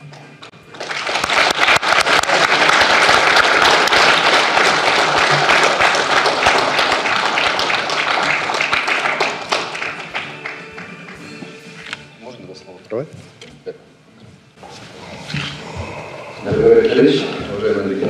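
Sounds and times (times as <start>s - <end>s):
audience applauding: 0.4s - 11.4s.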